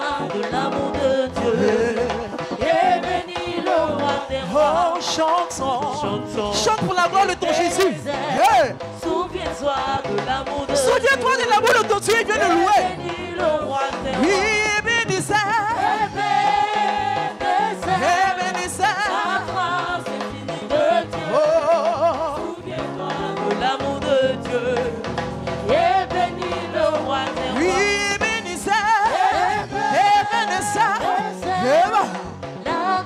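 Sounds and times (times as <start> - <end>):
person singing with vibrato: 0.0 - 15.8
band playing: 0.0 - 33.0.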